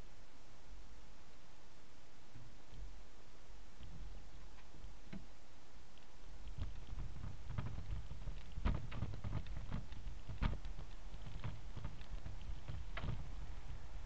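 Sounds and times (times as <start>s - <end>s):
low rumble of tyres on bricks: 6.0s - 14.0s
bicycle frame rattling: 6.6s - 13.8s.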